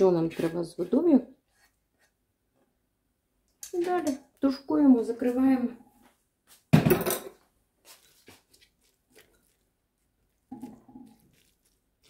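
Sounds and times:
spoon stirring clicks and scrapes: 7.9s - 12.0s.

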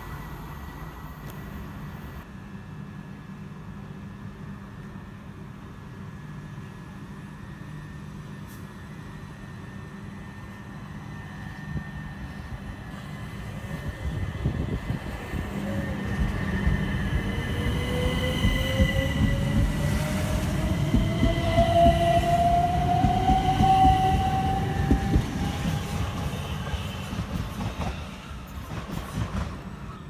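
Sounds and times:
train traction motor whine: 6.3s - 28.6s.

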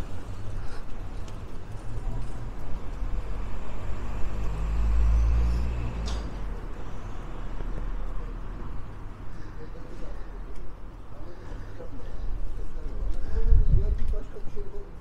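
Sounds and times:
street traffic: 0.0s - 15.0s
wind buffeting microphone: 13.1s - 14.3s.

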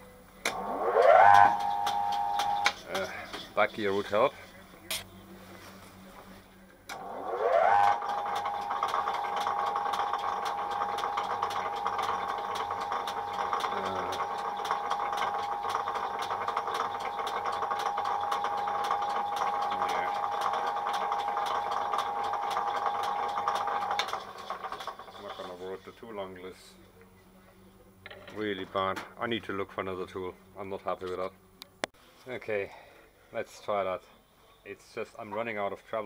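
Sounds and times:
lathe tool chatter squeal: 0.5s - 4.3s, 7.2s - 26.1s
regular ticking: 7.9s - 25.3s.

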